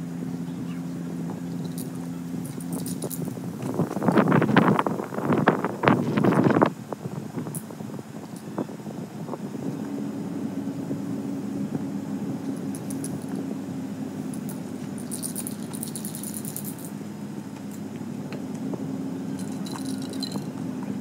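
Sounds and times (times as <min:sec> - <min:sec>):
low mechanical hum: 0:00.0 - 0:21.0
fast fine metallic rattling: 0:01.4 - 0:04.4, 0:14.3 - 0:17.0, 0:19.4 - 0:20.5.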